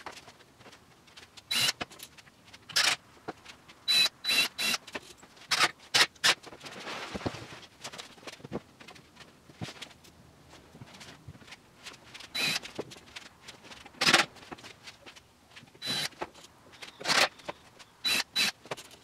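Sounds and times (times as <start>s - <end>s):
soft rustling: 6.5s - 15.7s.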